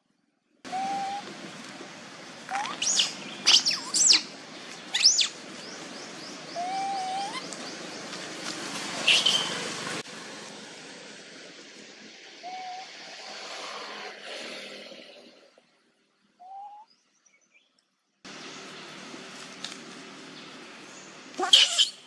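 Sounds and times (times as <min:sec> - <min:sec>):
birds chirping: 0:02.0 - 0:09.8.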